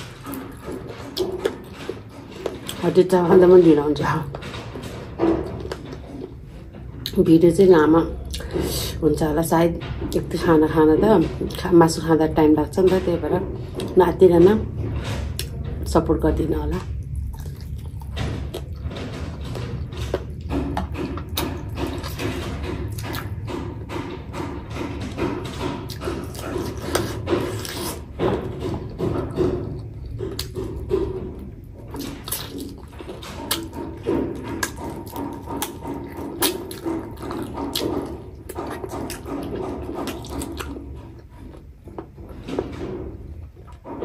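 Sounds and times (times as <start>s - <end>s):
chewing and lip-smacking: 17.0s - 18.9s, 22.9s - 23.3s, 25.9s - 30.8s, 31.9s - 42.3s.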